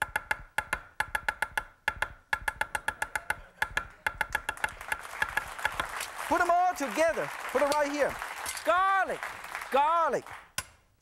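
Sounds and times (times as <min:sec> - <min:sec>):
cleaver chopping on wooden block: 0:00.0 - 0:05.9
audience applause: 0:04.6 - 0:10.5.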